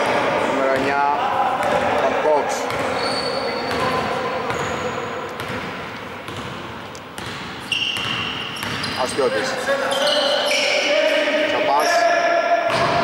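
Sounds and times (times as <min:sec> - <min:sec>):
sneaker squeaks: 0:00.0 - 0:06.6, 0:07.2 - 0:12.0
basketball bouncing on wooden floor: 0:02.7 - 0:03.0, 0:05.4 - 0:08.9.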